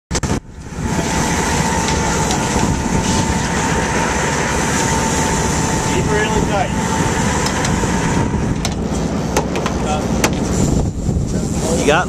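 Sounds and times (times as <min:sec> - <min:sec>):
boat engines rumbling: 0:00.1 - 0:12.0
wind buffeting microphone: 0:00.1 - 0:12.0
faint high whine: 0:00.2 - 0:09.2.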